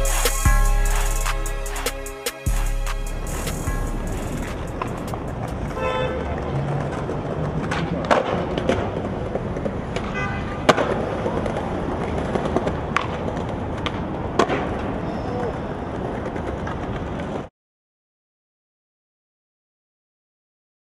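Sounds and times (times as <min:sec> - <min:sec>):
skateboard wheels rolling: 0:03.4 - 0:17.5
skateboard clacks: 0:04.2 - 0:17.5.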